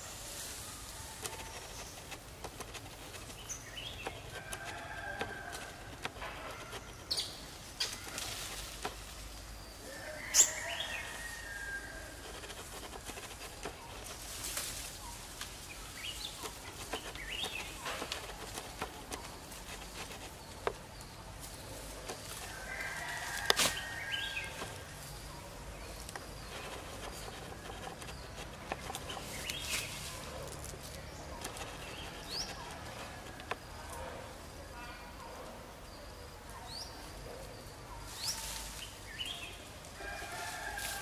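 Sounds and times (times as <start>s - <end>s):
leaves and branches rustling: 0.0s - 41.0s
sharp branch snap: 23.4s - 23.9s.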